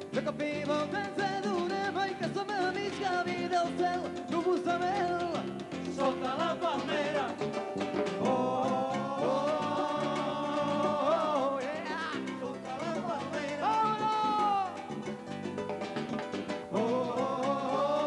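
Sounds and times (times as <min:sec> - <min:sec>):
person singing lead vocal: 0:00.0 - 0:14.9, 0:16.7 - 0:18.0
guitar: 0:00.0 - 0:18.0
latin percussion with timbales: 0:00.0 - 0:18.0.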